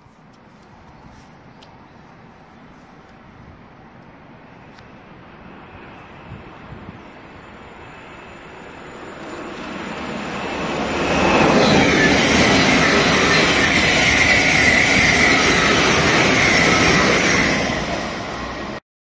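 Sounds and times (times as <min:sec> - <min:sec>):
train roaring past: 0:04.6 - 0:18.8.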